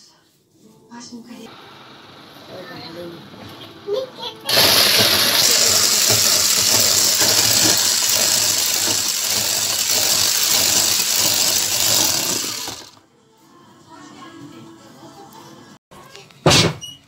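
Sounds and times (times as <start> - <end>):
electric hand mixer running: 4.5 - 13.0.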